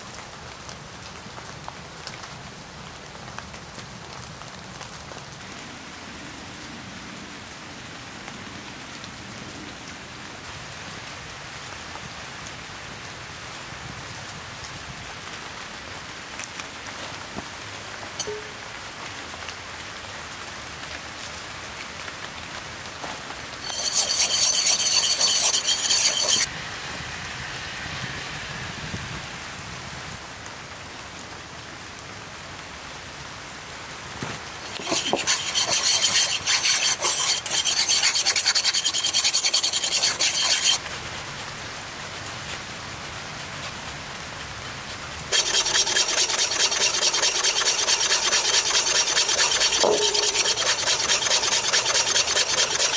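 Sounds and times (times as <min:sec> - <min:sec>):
wire whisk scraping ceramic bowl: 0:23.6 - 0:26.5, 0:34.6 - 0:40.8, 0:45.3 - 0:52.9.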